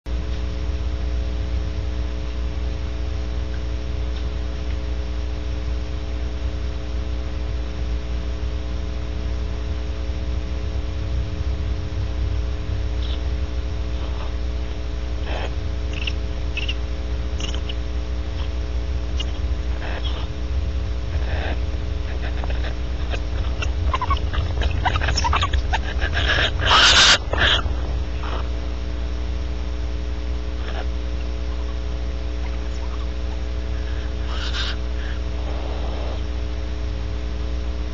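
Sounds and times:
steady electrical hum: 0.0s - 37.9s
barn owls chirping and screeching: 13.0s - 20.4s, 21.1s - 28.8s, 30.6s - 36.3s.

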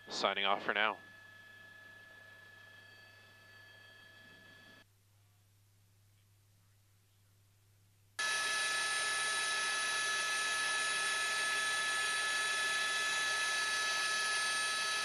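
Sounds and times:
turbine whine: 0.0s - 4.8s, 8.2s - 15.0s.

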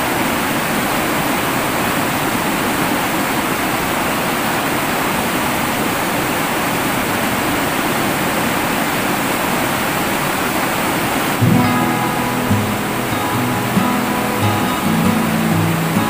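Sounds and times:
river rapids rushing: 0.0s - 16.0s
background music: 11.4s - 16.0s.

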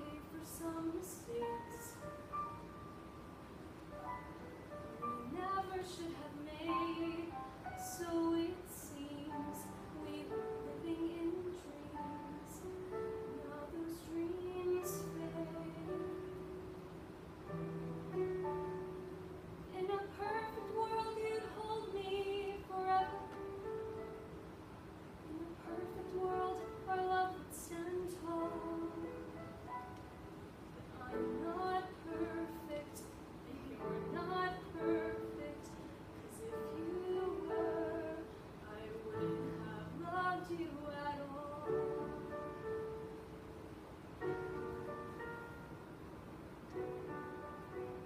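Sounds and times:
girl singing: 0.0s - 2.2s, 5.0s - 16.4s, 19.7s - 23.4s, 25.3s - 29.4s, 30.8s - 42.8s
instrumental backing track: 41.6s - 48.0s.

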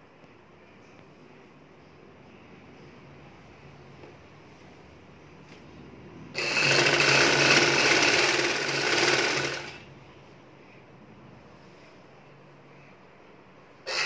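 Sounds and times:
sewing machine stitching: 6.4s - 9.8s.

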